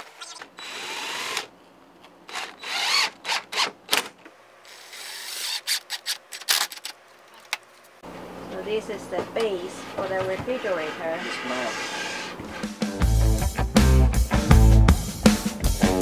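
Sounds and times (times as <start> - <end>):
cordless drill driving screws: 0.0 - 1.5, 2.3 - 3.7, 4.7 - 6.6.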